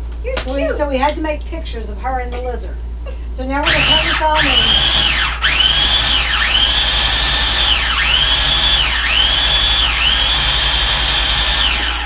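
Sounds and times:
blender motor whining: 3.6s - 12.0s.

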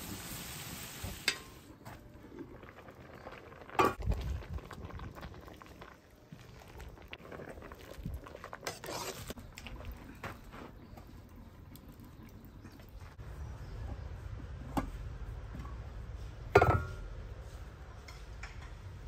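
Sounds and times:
frying sizzle: 0.0s - 1.8s.

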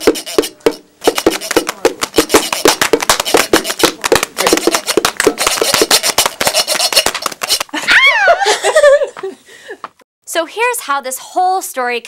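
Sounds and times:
rapid percussive taps and clicks: 0.0s - 7.7s
people laughing: 7.7s - 9.8s.

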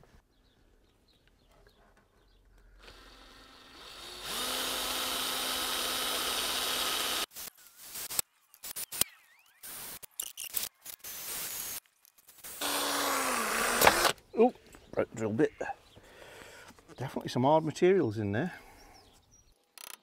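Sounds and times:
power drill boring into plastic: 2.8s - 7.3s, 12.6s - 14.2s.

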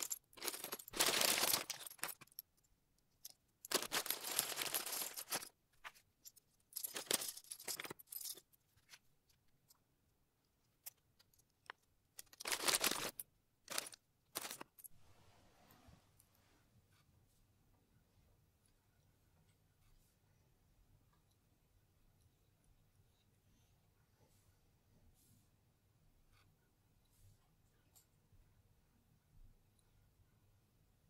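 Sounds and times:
plastic building blocks clattering: 0.0s - 2.4s, 3.2s - 6.0s, 6.7s - 9.0s, 10.8s - 14.9s.

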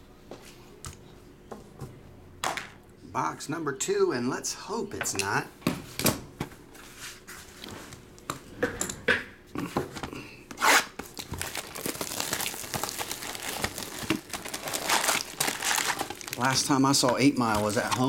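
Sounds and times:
plastic wrap ripping: 10.6s - 18.0s
plastic wrap crinkling: 11.0s - 18.0s.

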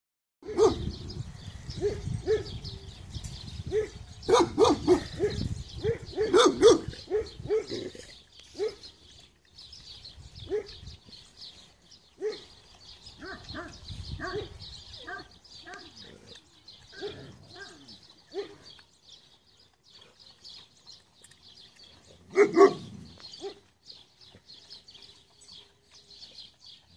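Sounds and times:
dogs barking: 0.4s - 1.1s, 1.7s - 2.6s, 3.6s - 8.9s, 10.4s - 10.9s, 12.1s - 12.6s, 13.2s - 16.1s, 16.9s - 18.7s, 22.2s - 23.7s.

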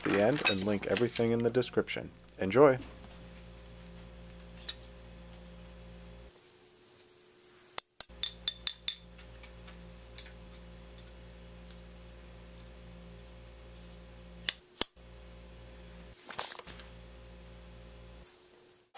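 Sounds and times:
faint steady hum: 0.0s - 18.9s.

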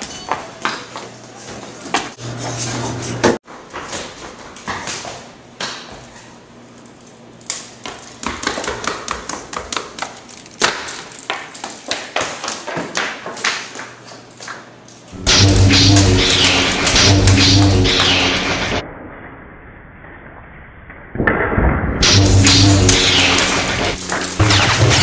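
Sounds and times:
low steady hum: 15.2s - 18.8s, 22.0s - 25.0s.

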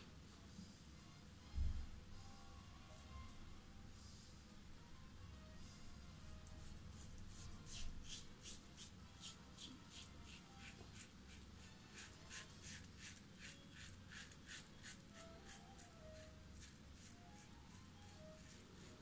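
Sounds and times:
razor scraping stubble: 6.6s - 19.0s.

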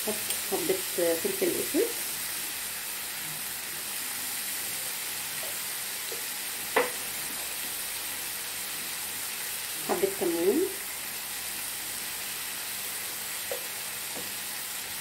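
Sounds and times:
sausage sizzling in a frying pan: 0.0s - 15.0s.

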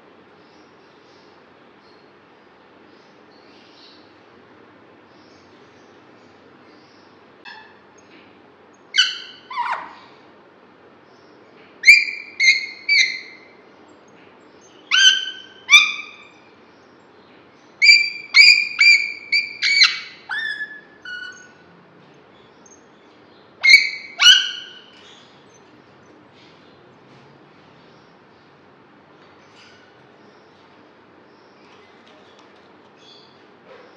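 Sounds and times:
parakeet squawking: 7.5s - 7.9s, 8.9s - 10.2s, 17.8s - 21.6s, 23.6s - 25.1s.

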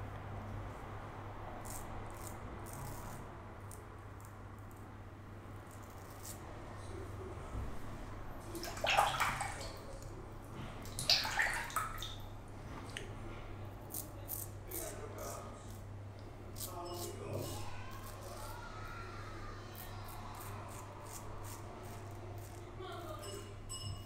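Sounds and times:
water splashing in sink: 8.4s - 10.1s, 10.8s - 12.3s.

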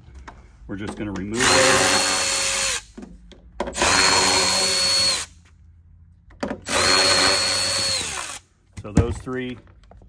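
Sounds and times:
electric ratchet whining: 3.8s - 5.4s, 6.7s - 8.4s.

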